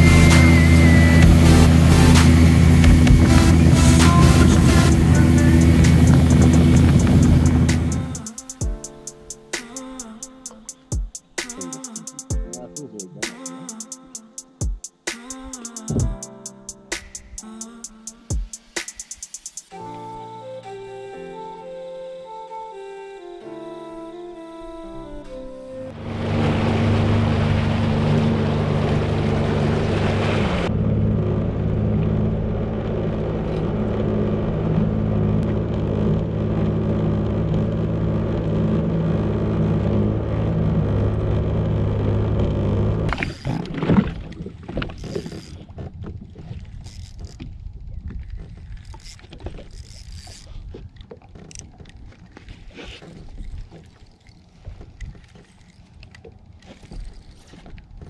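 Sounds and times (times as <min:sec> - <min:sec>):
water rushing past hull: 0:00.0 - 0:12.6, 0:24.8 - 0:58.0
jet ski engine running: 0:00.0 - 0:19.8, 0:25.9 - 0:58.0.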